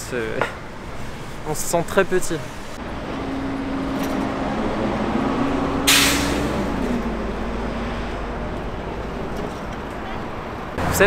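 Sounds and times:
traffic low rumble: 0:00.0 - 0:11.0
heavy vehicle engine hum: 0:02.4 - 0:11.0
air brakes hissing: 0:05.8 - 0:06.9.

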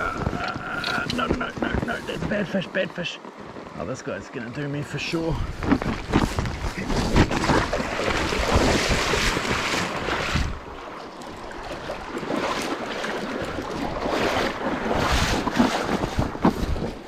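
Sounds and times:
stream water flowing: 0:00.0 - 0:17.0
wind buffeting microphone: 0:05.2 - 0:10.8.

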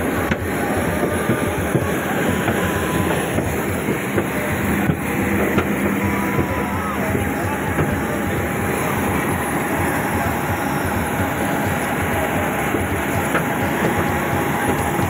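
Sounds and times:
jet aircraft drone: 0:00.0 - 0:15.0.

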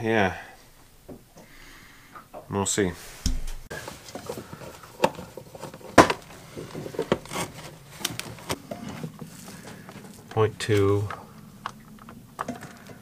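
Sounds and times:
bottles and cans clattering on shelf: 0:03.7 - 0:10.1.

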